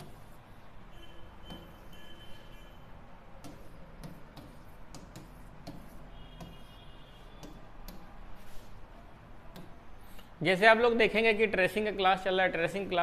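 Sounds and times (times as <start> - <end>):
writing tip tapping and scraping board: 0.0 - 0.4, 1.4 - 2.4, 3.4 - 8.6
faint high squeak: 0.9 - 2.9.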